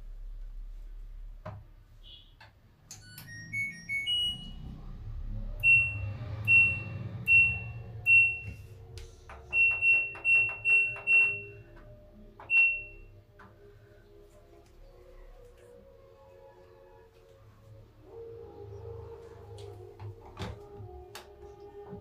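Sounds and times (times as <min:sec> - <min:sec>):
washing machine control panel beeps: 0:02.9 - 0:04.8, 0:05.6 - 0:08.7, 0:09.4 - 0:13.2
short tune of beeps: 0:03.0 - 0:04.7, 0:05.6 - 0:08.6.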